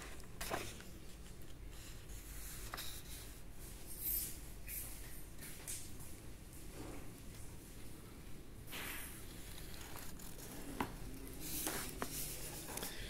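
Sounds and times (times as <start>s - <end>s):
book pages rustling: 0.0s - 3.3s, 8.7s - 13.0s.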